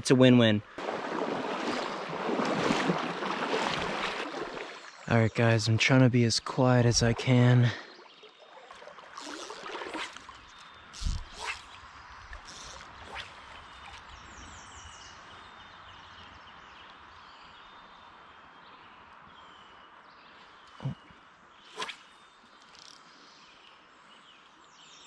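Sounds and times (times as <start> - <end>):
stream rushing: 0.8 - 5.2.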